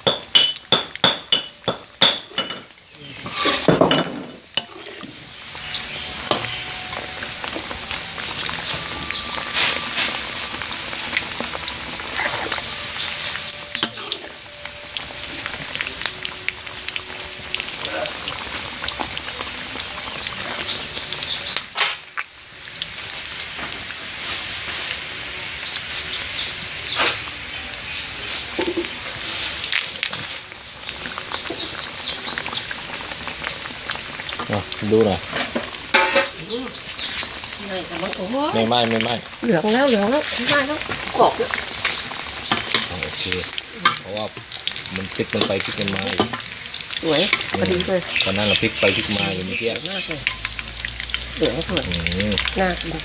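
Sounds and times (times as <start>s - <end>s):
meat sizzling in hot oil: 0.0s - 53.0s
metal spatula scraping wok: 2.2s - 15.9s, 35.2s - 37.4s, 43.8s - 52.7s.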